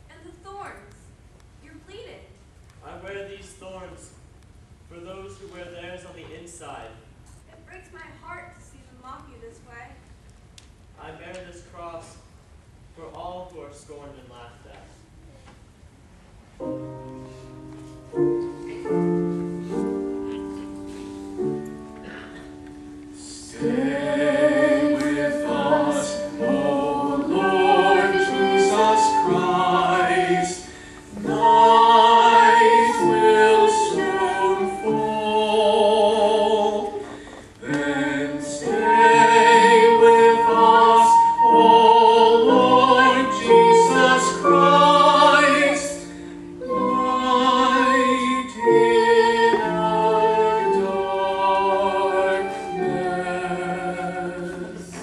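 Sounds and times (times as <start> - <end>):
person singing with vibrato: 23.1 - 55.0.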